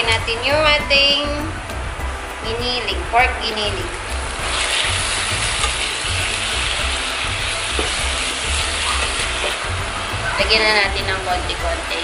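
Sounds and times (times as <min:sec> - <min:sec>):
meat sizzling in hot oil: 0:03.6 - 0:12.0
spatula stirring in a pan: 0:04.3 - 0:10.2.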